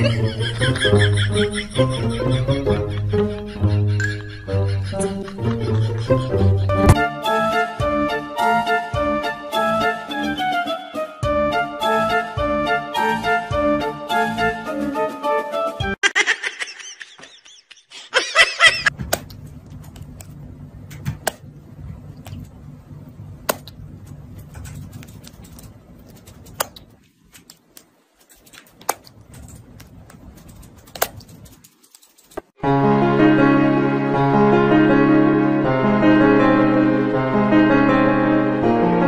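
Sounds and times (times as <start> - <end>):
low steady hum: 19.0 - 27.5.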